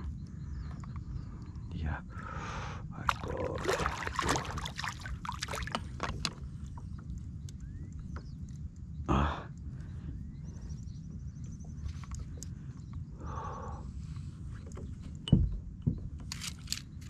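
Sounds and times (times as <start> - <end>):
low wind rumble: 0.0 - 17.0
fish thrashing and splashing: 3.1 - 6.4.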